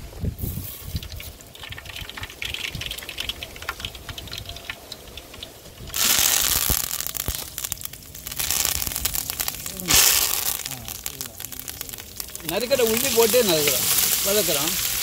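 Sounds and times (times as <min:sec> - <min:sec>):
light crackling: 0:00.4 - 0:15.0
liquid hissing in hot pot: 0:04.9 - 0:15.0.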